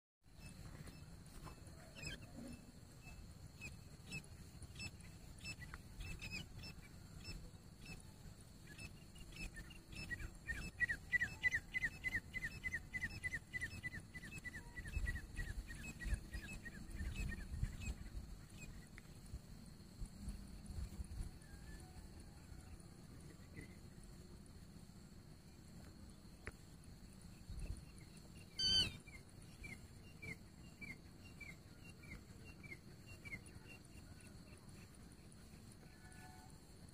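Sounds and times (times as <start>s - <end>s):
francolin calling: 0.4s - 18.8s, 27.6s - 36.4s.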